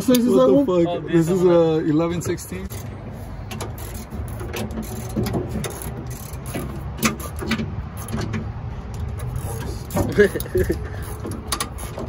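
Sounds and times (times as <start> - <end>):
ratchet wrench clicking: 2.6 - 12.0.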